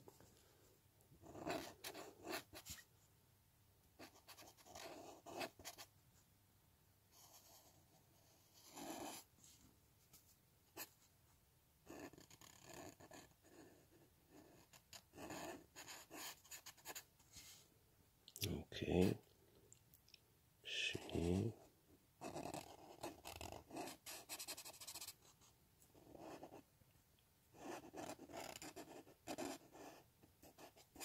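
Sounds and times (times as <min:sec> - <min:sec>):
marker drawing on paper: 0:01.2 - 0:02.8, 0:04.0 - 0:05.9, 0:07.2 - 0:09.3, 0:11.9 - 0:17.1, 0:22.2 - 0:26.6, 0:27.6 - 0:31.0.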